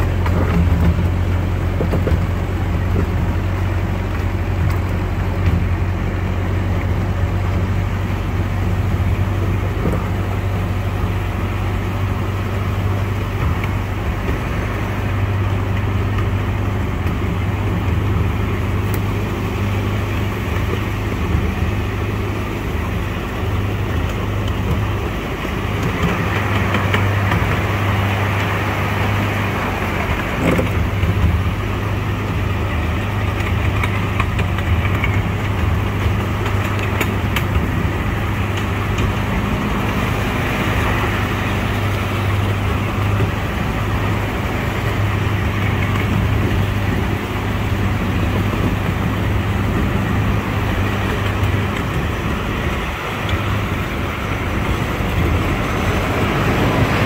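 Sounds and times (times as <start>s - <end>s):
low engine hum: 0.0s - 57.0s
train running rumble: 0.0s - 57.0s.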